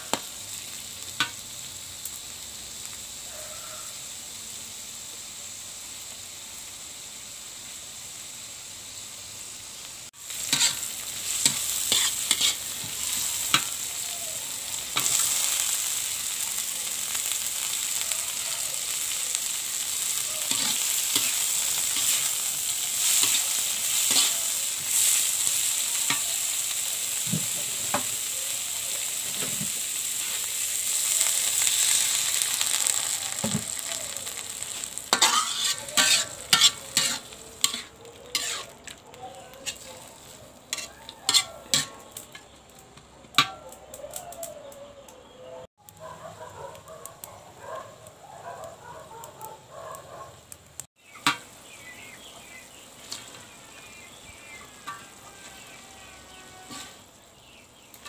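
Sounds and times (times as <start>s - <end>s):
vegetables sizzling in a pan: 0.0s - 44.6s, 45.8s - 58.0s
spatula scraping a pan: 10.3s - 13.8s, 20.4s - 26.3s, 34.7s - 39.0s, 39.6s - 42.5s, 53.0s - 57.1s.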